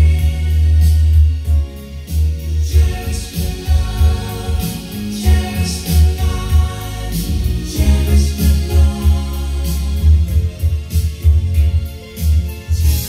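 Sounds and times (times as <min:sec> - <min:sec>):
song with singing and bass: 0:00.0 - 0:13.0.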